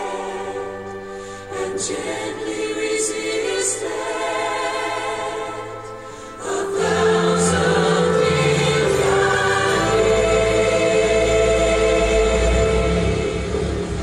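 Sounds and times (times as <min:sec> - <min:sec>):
choral music through car speakers: 0:00.0 - 0:14.0
deep bass: 0:09.2 - 0:14.0.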